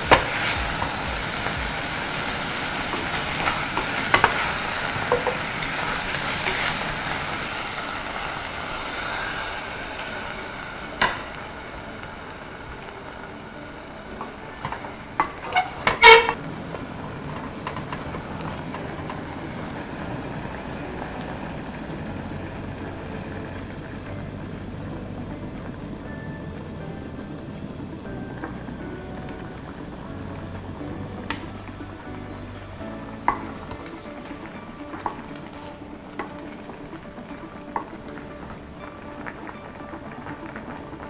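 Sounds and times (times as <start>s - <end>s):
wooden spatula stirring: 0.0s - 7.2s
meat and onions sizzling: 0.0s - 41.0s
steady simmer: 0.0s - 41.0s.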